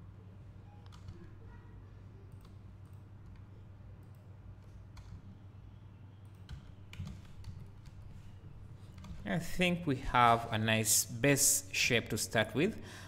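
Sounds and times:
keyboard and mouse clicks: 0:06.2 - 0:08.1.

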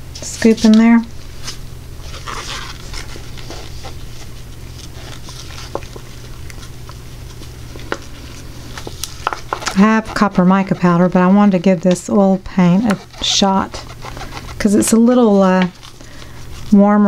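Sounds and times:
steady low hum: 0:00.0 - 0:17.0
stir stick scraping a plastic cup: 0:09.2 - 0:11.7, 0:12.4 - 0:15.3.

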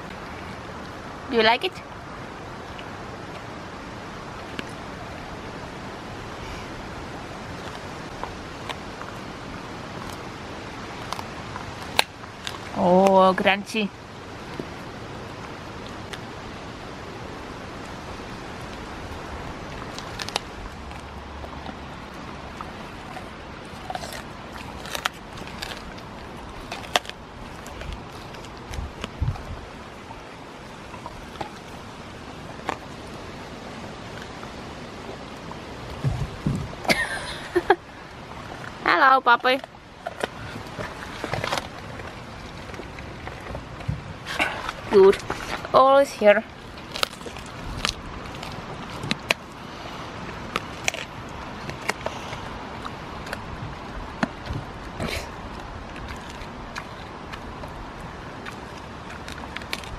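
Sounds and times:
dog chewing bone: 0:17.7 - 0:36.9, 0:38.2 - 0:45.7, 0:46.5 - 0:59.9
bone crunching: 0:19.6 - 0:33.2, 0:46.6 - 0:59.9.

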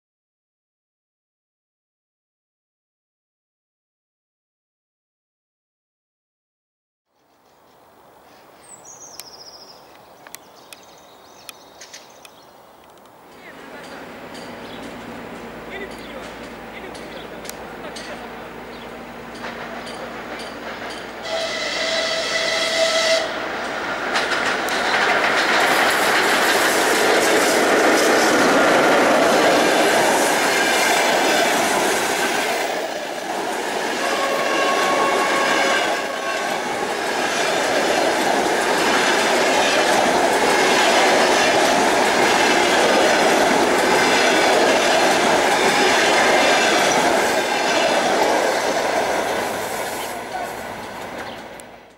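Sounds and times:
wheels clattering over rail joints: 0:13.0 - 0:21.3, 0:23.5 - 0:33.7, 0:36.2 - 0:51.9
train rushing past: 0:13.3 - 0:51.9
locomotive horn: 0:21.2 - 0:23.4, 0:33.9 - 0:36.8.

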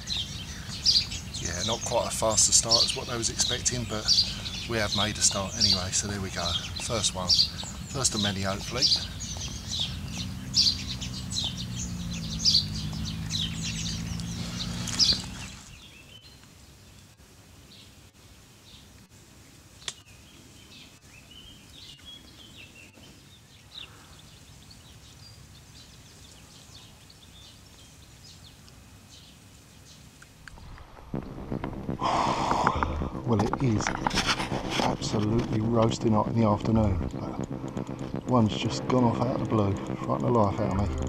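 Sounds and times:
birds chirping: 0:00.0 - 0:17.1, 0:19.8 - 0:41.0
low steady hum: 0:30.4 - 0:41.0.

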